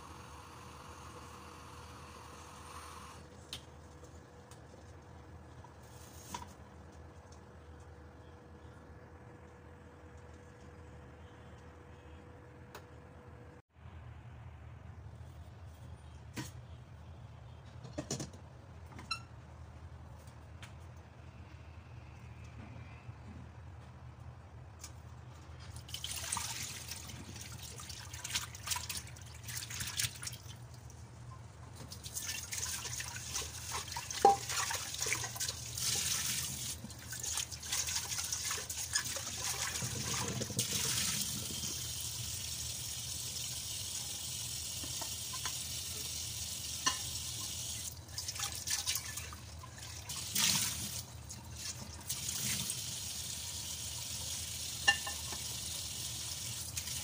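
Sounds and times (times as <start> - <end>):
water splashing into a metal sink: 25.8 - 30.7, 31.9 - 41.4, 48.1 - 52.8, 54.8 - 55.6
kitchen tap running: 31.9 - 57.0.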